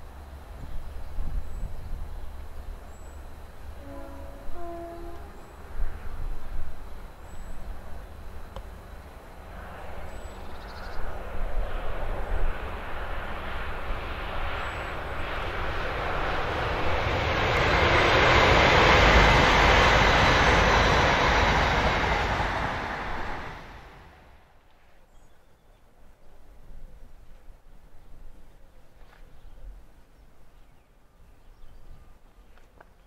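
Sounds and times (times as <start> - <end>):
passing train: 0.0 - 33.0.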